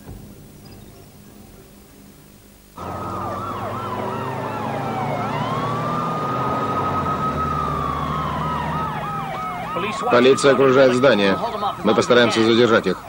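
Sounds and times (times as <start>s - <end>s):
low vehicle rumble: 2.8s - 12.3s
police sirens wailing and yelping: 2.8s - 13.0s.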